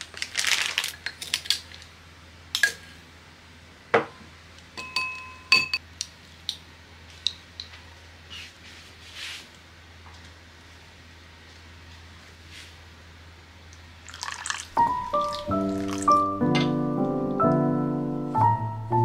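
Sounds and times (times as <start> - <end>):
tableware and utensils knocking: 4.8 - 5.8, 16.5 - 16.8.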